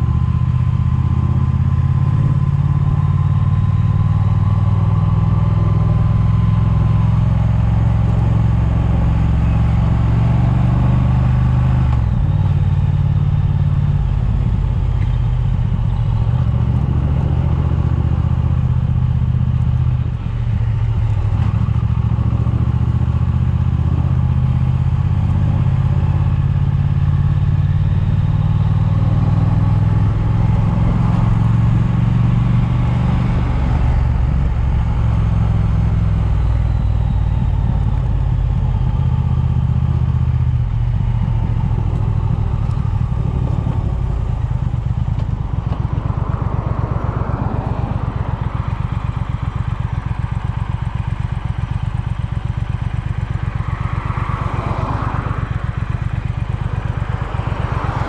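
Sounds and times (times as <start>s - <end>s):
motorcycle engine running: 0.0s - 58.0s
wind noise on microphone: 40.7s - 48.0s.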